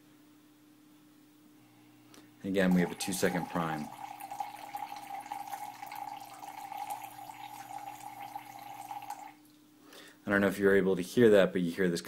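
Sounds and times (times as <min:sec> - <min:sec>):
water pump whining: 0:02.7 - 0:09.4.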